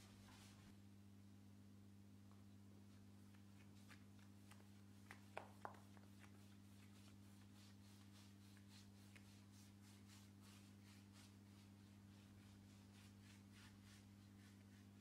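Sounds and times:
paintbrush strokes on wood: 0.0 - 0.8, 2.9 - 15.0
steady low hum: 0.0 - 15.0.

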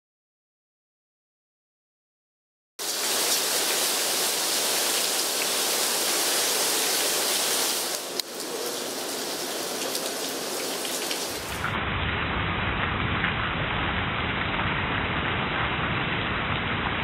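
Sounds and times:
runoff pouring off roof: 2.8 - 11.8
heavy rain: 2.8 - 17.0.

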